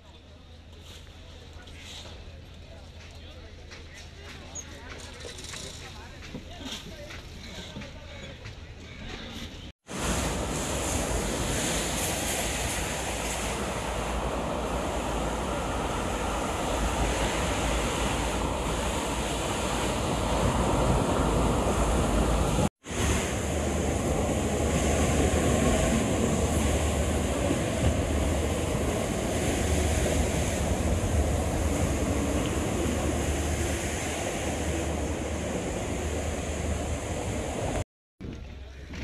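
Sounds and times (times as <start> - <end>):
waves breaking on beach: 9.8 - 37.8
wind on microphone: 9.9 - 39.0.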